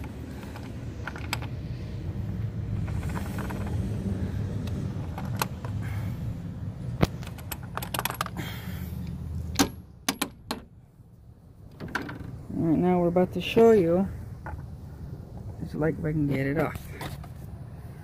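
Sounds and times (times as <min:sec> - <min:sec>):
wrench clicking on engine parts: 0:00.0 - 0:01.6, 0:02.7 - 0:04.0, 0:07.0 - 0:10.7.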